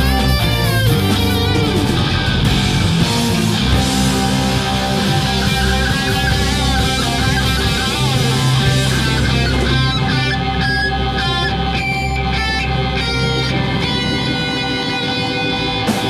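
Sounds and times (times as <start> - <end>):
drums: 0.0 - 16.0
electric guitars: 0.0 - 16.0
lead guitar bending notes: 0.0 - 16.0.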